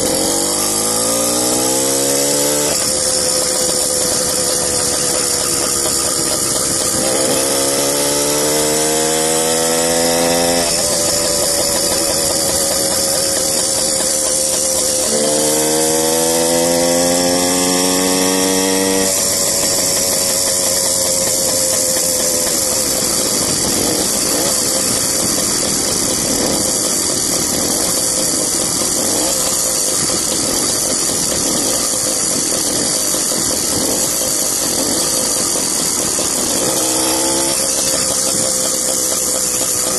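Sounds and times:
two-stroke bicycle engine revving: 0:00.0 - 0:39.9
wind rushing over microphone: 0:22.8 - 0:27.9.

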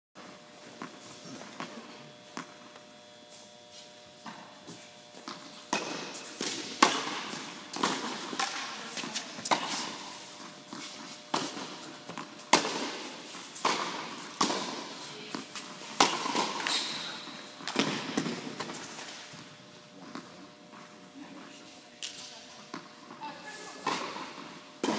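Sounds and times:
tennis ball hits and bounces: 0:05.2 - 0:10.0, 0:11.3 - 0:16.9.

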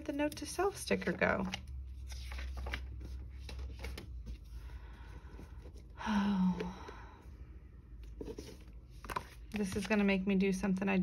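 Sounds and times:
paper and desk rustles and clicks: 0:00.0 - 0:04.6, 0:08.0 - 0:10.2
person sighing: 0:05.9 - 0:07.2.

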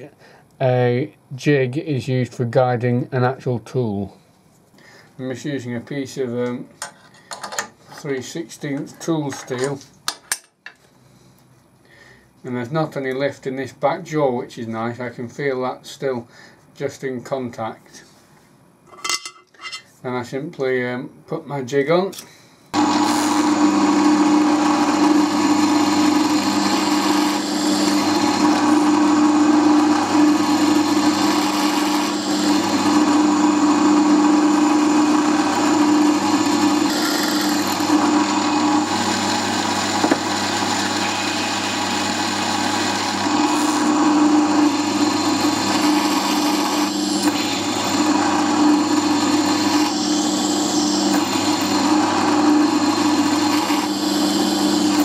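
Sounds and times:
drill cutting steel: 0:22.8 - 0:55.0
milling machine spindle whine: 0:22.8 - 0:55.0.

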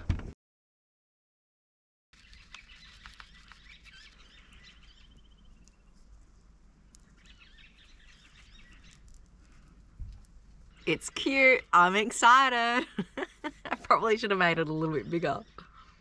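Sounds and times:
bird trilling: 0:02.2 - 0:05.8, 0:07.0 - 0:09.0
faint chirps and ticks: 0:02.2 - 0:11.8, 0:15.0 - 0:16.0.

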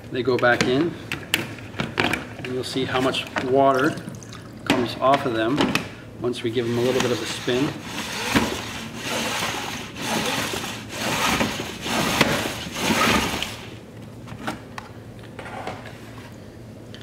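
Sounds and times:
salad spinner whirring: 0:06.6 - 0:13.7.

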